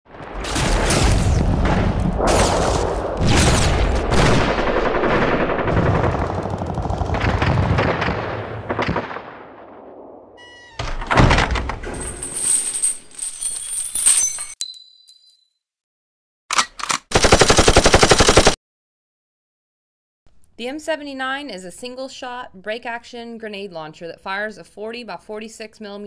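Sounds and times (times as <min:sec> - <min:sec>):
gunshots and blasts echoing: 0:00.1 - 0:10.4, 0:17.1 - 0:18.6
brass cartridges clinking: 0:12.0 - 0:15.4.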